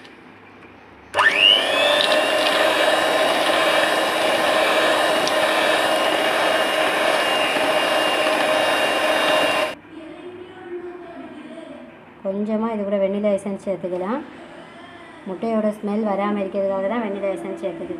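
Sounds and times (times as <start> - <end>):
electric hand mixer whining: 1.2 - 9.8.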